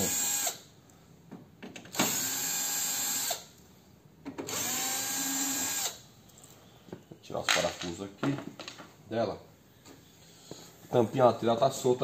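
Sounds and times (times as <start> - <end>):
electric screwdriver whining: 2.0 - 3.4, 4.5 - 6.0.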